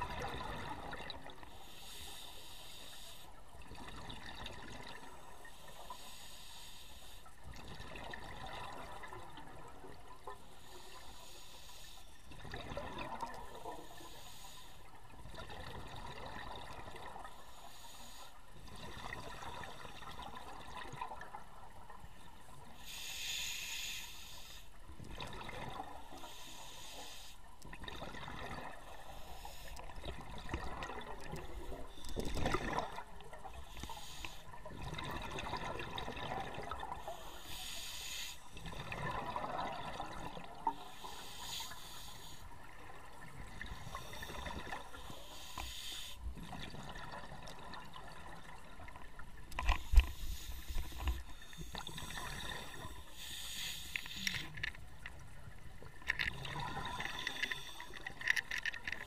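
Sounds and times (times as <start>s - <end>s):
exhaled air bubbling: 0.0s - 1.6s, 12.3s - 14.1s, 24.8s - 26.3s, 27.5s - 59.0s
regulator inhalation hiss: 1.5s - 3.4s, 5.5s - 7.3s, 10.5s - 12.2s, 13.6s - 15.0s, 17.3s - 18.4s, 22.8s - 24.8s, 26.1s - 27.5s, 28.9s - 29.9s, 33.5s - 34.6s, 37.0s - 38.6s, 40.6s - 42.5s, 43.8s - 46.3s, 49.7s - 54.6s, 56.7s - 58.1s.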